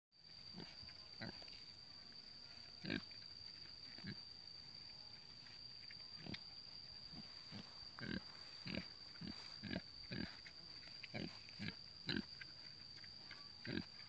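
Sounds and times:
faint high-pitched whine: 0.2 - 14.0
pig grunting: 7.5 - 10.4, 13.6 - 14.0.

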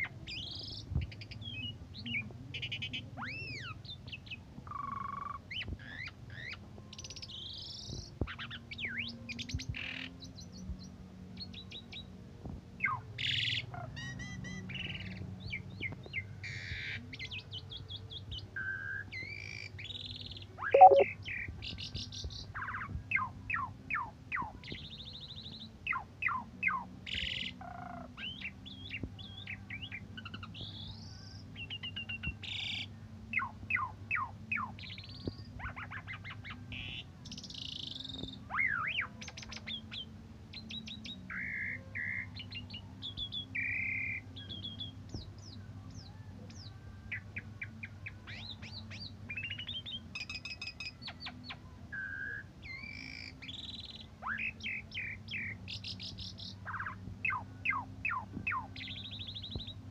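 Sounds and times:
starling singing: 20.8 - 21.0.

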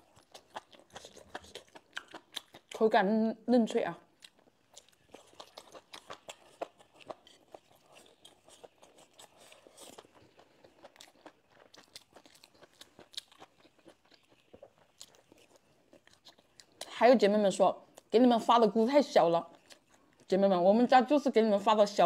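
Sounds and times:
person chewing crunchy food: 0.0 - 2.8, 4.1 - 16.9, 19.5 - 20.3.

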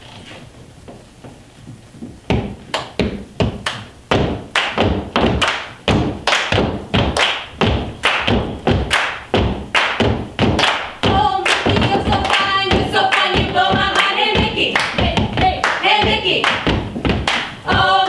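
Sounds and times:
group clapping and stomping: 2.0 - 18.0.

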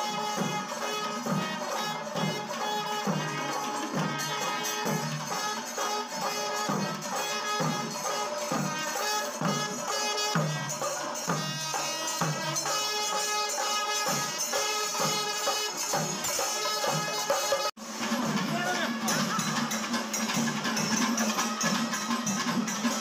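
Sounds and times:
brass horns blowing long tones: 0.0 - 10.8, 11.4 - 17.7
drums beating steady rhythm: 0.0 - 23.0.

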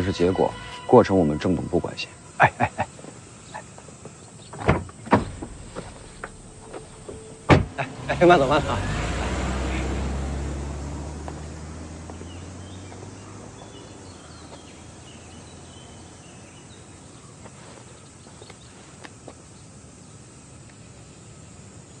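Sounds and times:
car engine hum: 0.0 - 2.8, 4.6 - 16.2.

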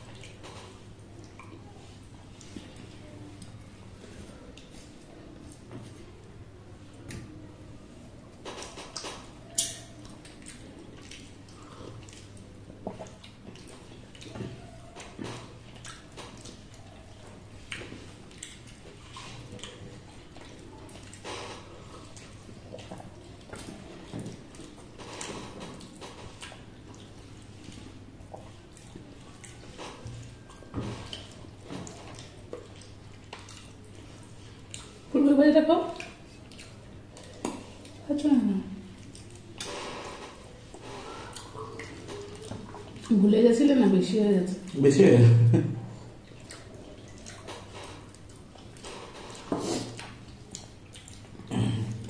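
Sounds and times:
chewing: 0.0 - 6.3, 8.4 - 35.1, 35.8 - 38.1, 38.8 - 43.2, 46.0 - 52.0
low steady hum: 0.0 - 52.0
lip smacks while eating: 8.5 - 35.0, 35.9 - 38.0, 40.7 - 43.1, 46.2 - 52.0.

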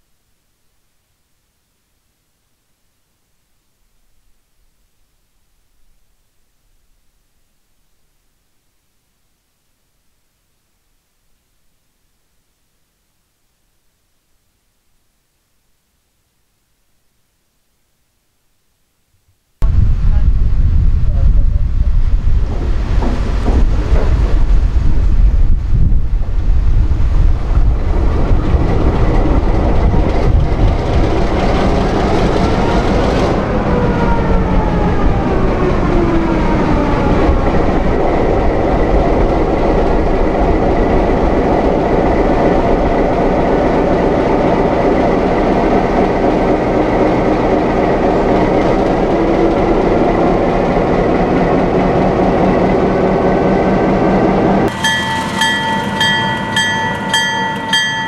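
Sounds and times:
diesel locomotive running: 19.7 - 58.0.

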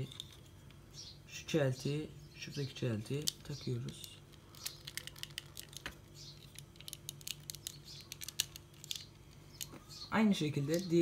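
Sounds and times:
plastic toy parts clicking: 3.2 - 9.8.

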